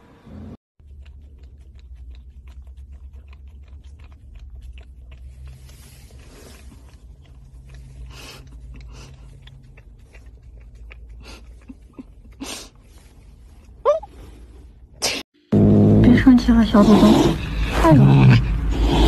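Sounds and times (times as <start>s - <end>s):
puppy licking: 0.8s - 14.1s.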